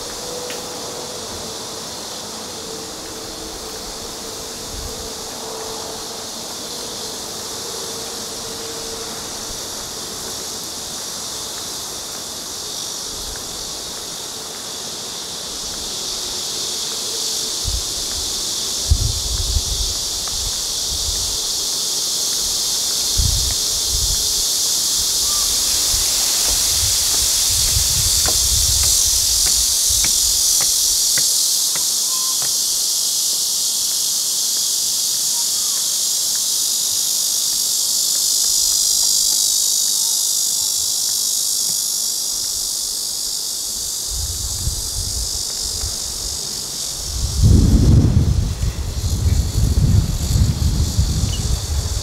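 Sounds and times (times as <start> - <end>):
insect chorus buzzing: 0.0 - 52.0
wind rumbling on microphone: 17.6 - 21.6, 22.4 - 31.2, 44.0 - 52.0.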